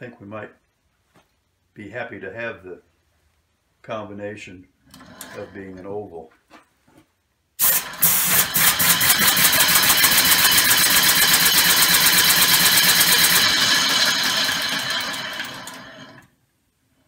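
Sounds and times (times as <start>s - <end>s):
air engine exhaust hissing puffs: 7.6s - 13.8s.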